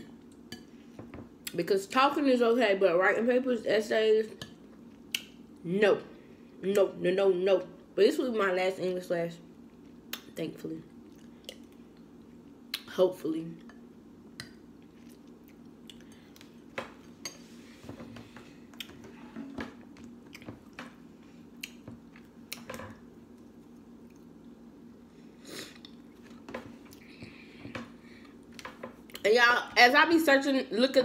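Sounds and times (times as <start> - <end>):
quiet chewing: 14.4 - 17.2, 23.3 - 24.5.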